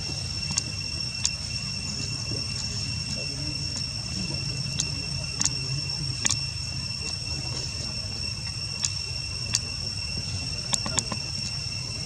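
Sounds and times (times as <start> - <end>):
insects droning: 0.0 - 12.0
low background rumble: 0.0 - 12.0
sharp clicks: 4.8 - 5.6, 8.8 - 9.7.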